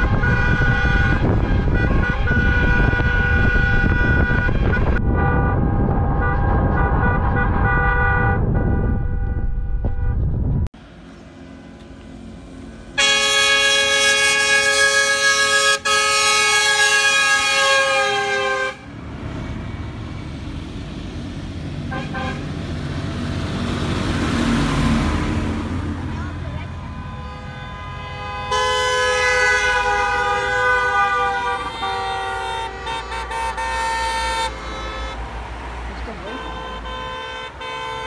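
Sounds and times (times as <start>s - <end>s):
car horns honking: 0.0s - 10.3s, 13.0s - 18.9s, 21.9s - 22.6s, 26.1s - 38.0s
long horn blast: 0.0s - 10.3s, 12.9s - 19.0s, 21.8s - 22.6s, 26.1s - 38.0s
road noise inside moving car: 0.0s - 38.0s
tractor engine: 10.8s - 38.0s.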